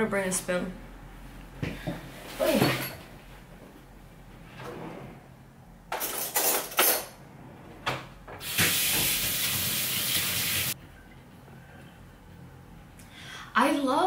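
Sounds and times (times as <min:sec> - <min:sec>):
cutlery clattering: 0:05.9 - 0:07.2
kitchen tap running: 0:08.4 - 0:10.8.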